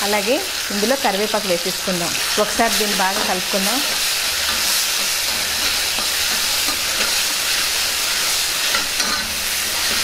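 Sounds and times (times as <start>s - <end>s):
food sizzling in hot oil: 0.0s - 10.0s
metal spatula scraping pan: 4.4s - 10.0s.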